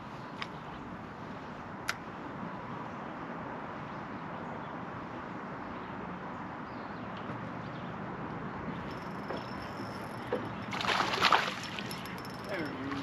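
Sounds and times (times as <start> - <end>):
wind: 0.0 - 13.0
water lapping around a boat: 7.4 - 13.0.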